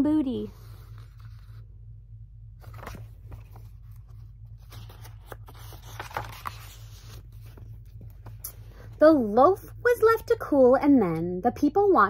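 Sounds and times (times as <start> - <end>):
low steady hum: 0.0 - 12.0
book pages rustling: 0.5 - 1.7, 2.6 - 8.6.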